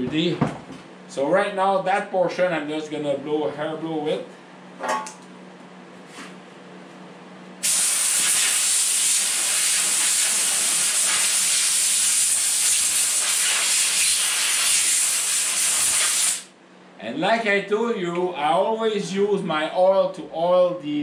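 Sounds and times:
compressed air blow gun hissing: 0:07.6 - 0:16.5.

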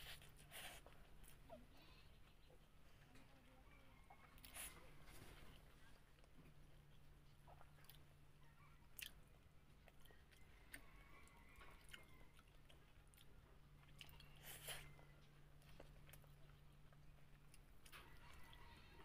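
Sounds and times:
low steady hum: 0:00.0 - 0:19.0
person chewing food: 0:04.1 - 0:19.0.

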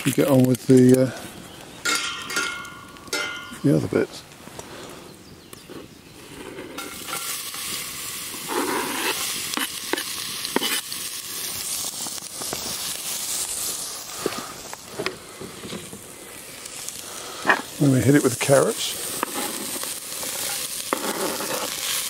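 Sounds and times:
onion sizzling in hot oil: 0:06.1 - 0:22.0.

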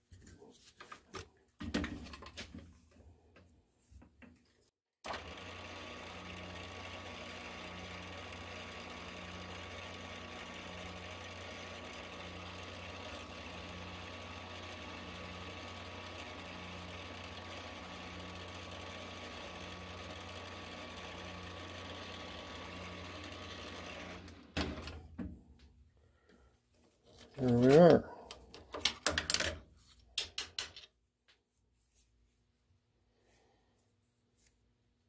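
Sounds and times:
drill boring into brass: 0:05.1 - 0:24.5
milling machine motor humming: 0:05.1 - 0:25.0.

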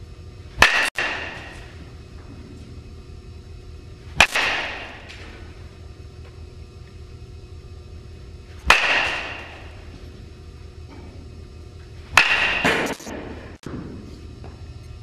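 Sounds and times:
baseball bat hitting ball: 0:00.6 - 0:01.8, 0:04.1 - 0:05.4, 0:08.6 - 0:09.9, 0:12.1 - 0:14.0.

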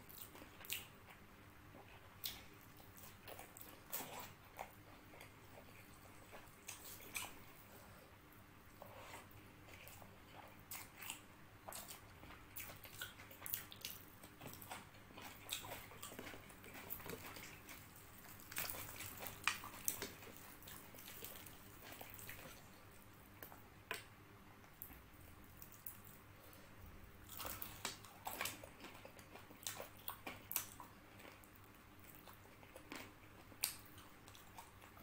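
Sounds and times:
wet chewing and lip smacks: 0:08.9 - 0:26.6, 0:27.2 - 0:35.0.

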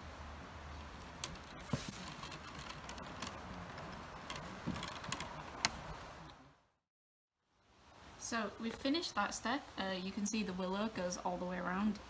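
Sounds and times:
steady low hiss: 0:00.0 - 0:06.6, 0:07.4 - 0:12.0
willow rods clicking and rustling: 0:00.8 - 0:06.4.

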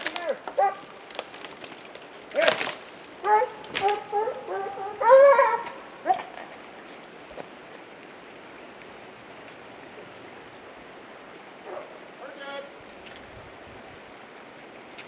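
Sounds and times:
faint background hiss: 0:00.0 - 0:15.0
hounds giving high cries: 0:00.2 - 0:01.0, 0:03.2 - 0:06.6.

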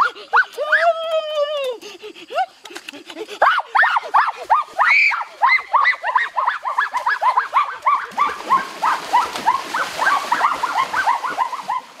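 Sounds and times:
water splashing: 0:02.9 - 0:12.0.

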